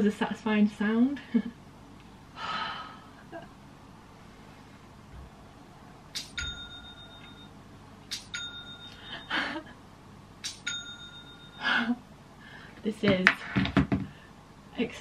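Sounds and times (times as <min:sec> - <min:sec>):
phone notification ding: 0:06.4 - 0:07.5, 0:08.3 - 0:09.3, 0:10.6 - 0:11.6.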